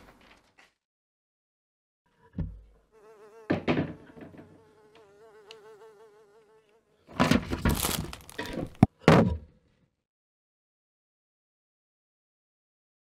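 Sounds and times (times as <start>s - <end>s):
fly buzzing: 2.9s - 7.1s
plastic bin liner crinkling: 7.5s - 8.6s.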